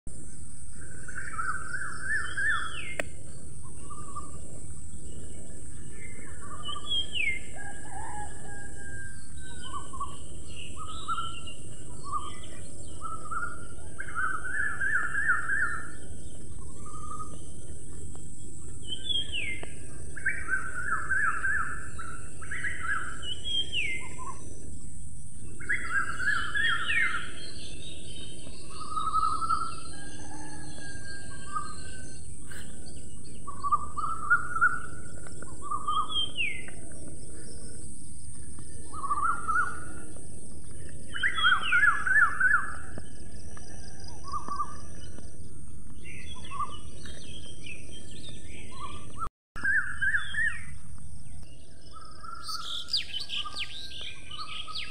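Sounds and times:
steady background hiss: 0:00.1 - 0:43.4
birds singing: 0:00.1 - 0:54.9.

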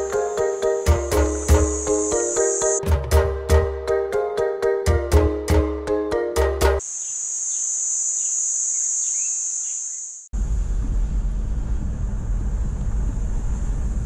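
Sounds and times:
high-pitched insect drone: 0:00.0 - 0:02.8, 0:06.8 - 0:10.3
music with plucked notes: 0:02.8 - 0:06.8
faint bird chirps: 0:06.9 - 0:10.3
vehicle rumbling on dirt road: 0:10.4 - 0:14.0.

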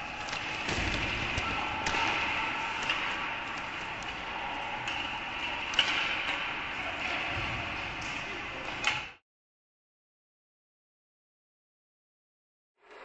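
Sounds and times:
hockey sticks clicking on puck: 0:00.0 - 0:07.3
crowd: 0:00.0 - 0:09.2.

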